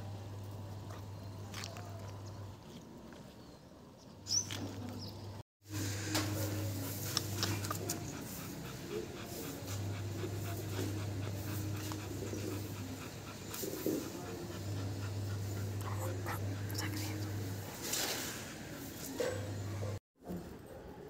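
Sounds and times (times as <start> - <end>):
steady low hum: 5.1 - 20.0
dog panting rapidly: 6.3 - 20.0.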